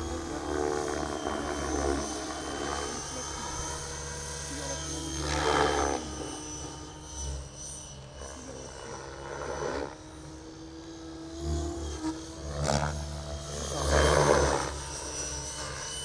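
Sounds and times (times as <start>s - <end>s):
model helicopter rotor noise: 0.0s - 16.0s.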